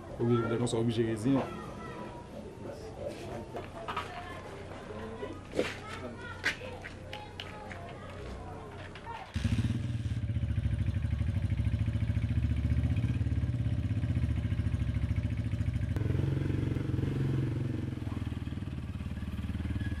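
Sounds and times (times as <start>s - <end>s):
motorbike engine running: 9.3s - 20.0s.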